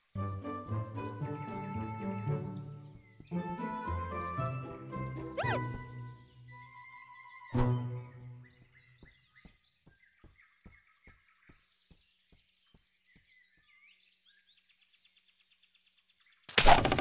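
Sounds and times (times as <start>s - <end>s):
faint bird chirps: 5.4s - 16.8s.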